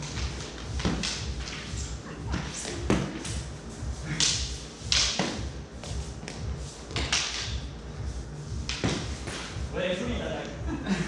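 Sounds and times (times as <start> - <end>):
training swords clacking: 0.0 - 7.7.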